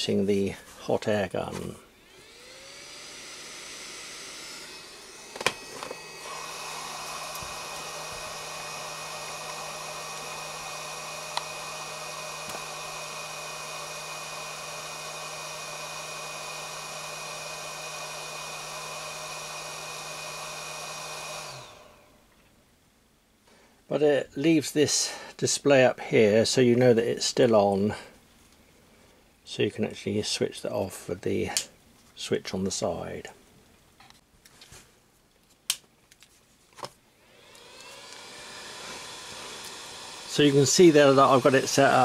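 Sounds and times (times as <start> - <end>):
hot air gun fan whirring: 0.0 - 22.2, 37.2 - 42.0.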